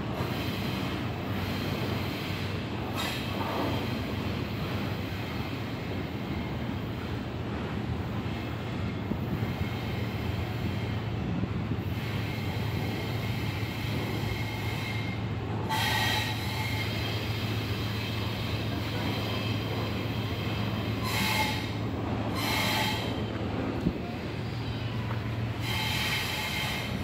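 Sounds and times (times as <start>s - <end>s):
train wheels rumbling on rail: 0.0s - 27.0s
high wheel squeal: 12.1s - 23.3s, 25.6s - 27.0s.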